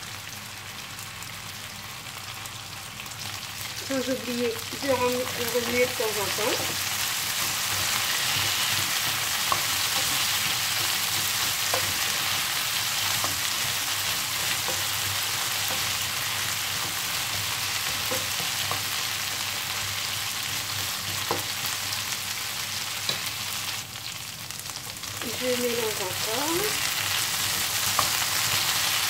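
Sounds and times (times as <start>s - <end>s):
potatoes sizzling in butter: 0.0s - 29.0s
wooden spatula stirring: 4.9s - 19.4s.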